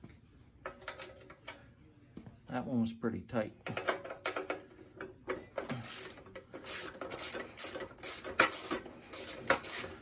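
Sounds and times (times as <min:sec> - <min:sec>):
hand ratchet clicking: 0:05.6 - 0:10.0.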